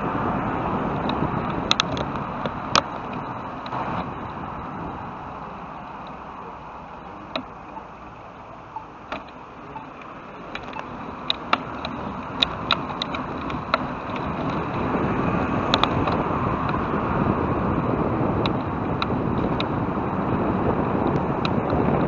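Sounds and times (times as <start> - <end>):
wind and road noise: 0.0 - 22.0
bicycle clicks and rattles: 0.9 - 4.5, 9.1 - 17.0.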